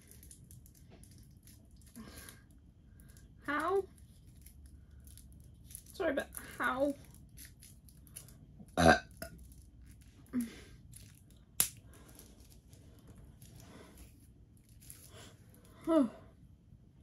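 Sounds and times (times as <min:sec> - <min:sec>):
person burping: 0:08.8 - 0:09.3.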